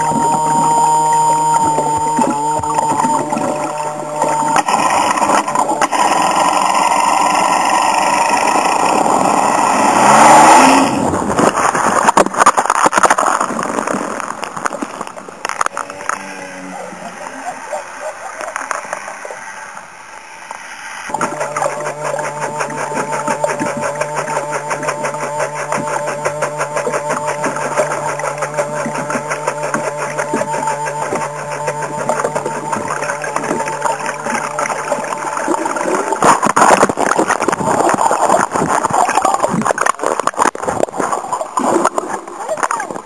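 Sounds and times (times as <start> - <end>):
jet ski engine drone underwater: 0.0 - 43.0
water rushing and splashing: 0.0 - 43.0
muffled watery hiss: 13.9 - 27.3.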